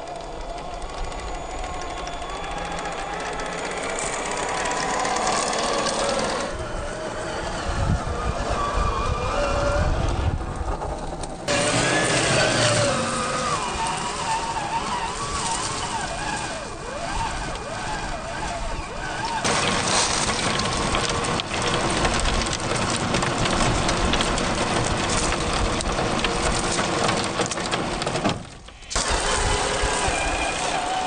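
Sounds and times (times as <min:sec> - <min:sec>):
electric motor and drivetrain whine: 0:00.0 - 0:31.0
tyres crunching on gravel: 0:11.5 - 0:31.0.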